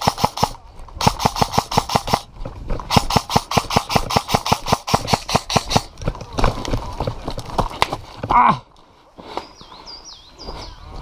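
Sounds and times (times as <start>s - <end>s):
footsteps running on gravel path: 2.2s - 3.1s, 5.4s - 8.4s.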